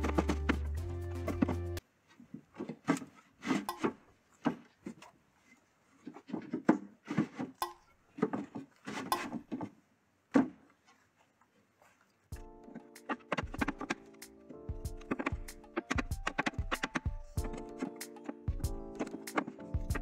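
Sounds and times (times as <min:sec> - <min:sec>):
wood scraping: 0:00.0 - 0:20.0
wooden panels knocking: 0:13.1 - 0:14.0.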